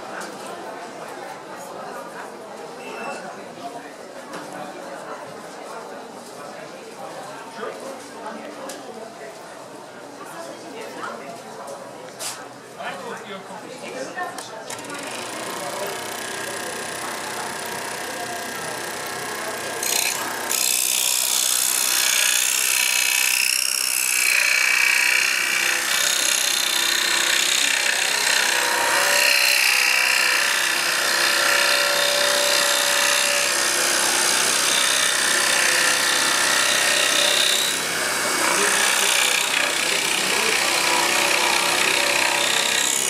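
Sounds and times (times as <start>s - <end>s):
scroll saw cutting wood: 14.7s - 43.0s.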